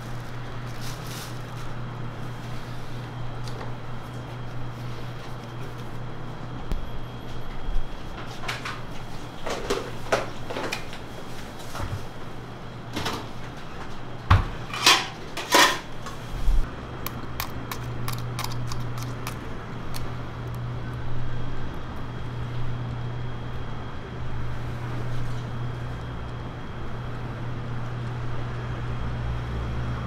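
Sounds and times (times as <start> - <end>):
steady low hum: 0.0 - 30.0
kitchen handling clatter: 14.3 - 16.2.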